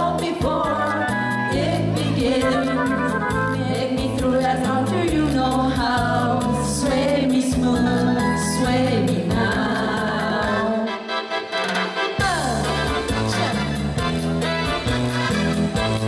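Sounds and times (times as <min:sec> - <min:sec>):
bass line: 0:00.0 - 0:10.8, 0:12.2 - 0:16.0
women singing together: 0:00.0 - 0:11.0
steady beat: 0:01.6 - 0:04.8.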